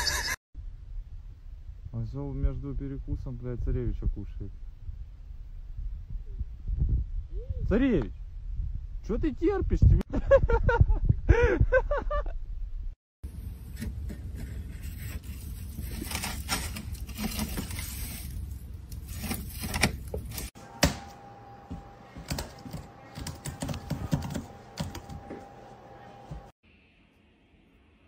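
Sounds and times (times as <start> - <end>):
keyboard keys clicking: 22.2 - 25.3.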